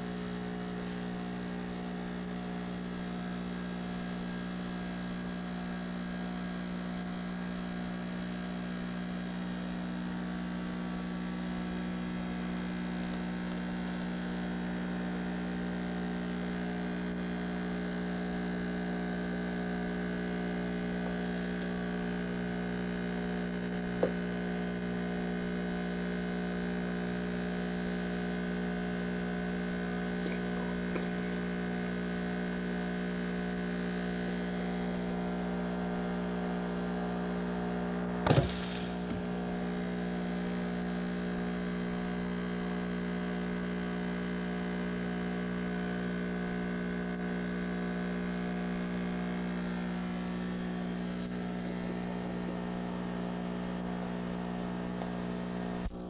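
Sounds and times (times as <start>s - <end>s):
faint ticks: 0.0s - 56.0s
steady low hum: 0.0s - 56.0s
sharp click: 37.4s - 39.6s.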